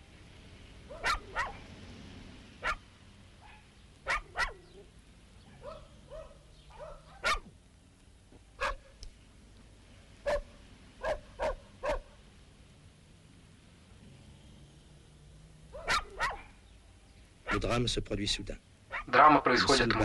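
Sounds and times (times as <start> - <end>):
dog yelping: 0.9 - 1.6, 3.4 - 4.9, 5.6 - 7.5, 8.6 - 8.8, 10.3 - 12.1, 15.7 - 16.6, 18.9 - 19.1
dog barking: 0.9 - 1.7, 2.6 - 2.8, 3.4 - 4.9, 5.5 - 7.5, 8.6 - 8.9, 10.2 - 12.2, 15.7 - 16.6, 17.4 - 17.6, 18.9 - 19.2.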